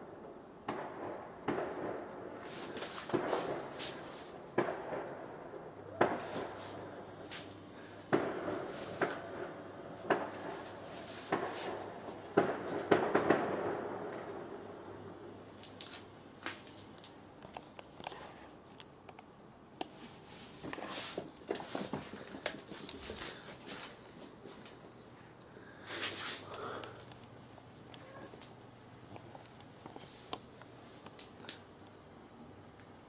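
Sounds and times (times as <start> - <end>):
fabric rustling: 19.9 - 24.7
cats scuffling: 19.9 - 24.9.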